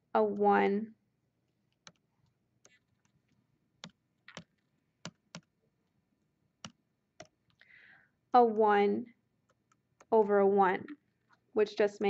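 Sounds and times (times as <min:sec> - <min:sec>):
computer mouse clicks: 0:01.7 - 0:05.5.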